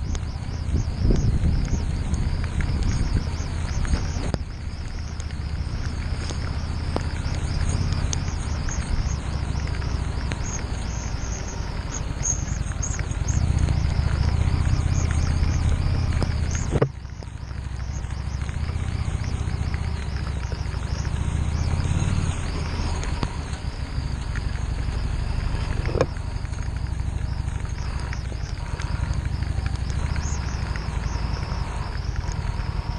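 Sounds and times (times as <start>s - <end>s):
motorcycle engine running: 0.0s - 32.9s
wind hiss: 0.0s - 32.9s.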